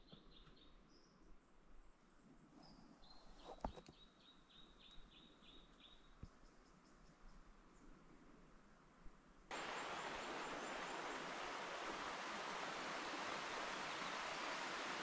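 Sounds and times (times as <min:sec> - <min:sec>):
stream water rushing: 0:09.5 - 0:15.0.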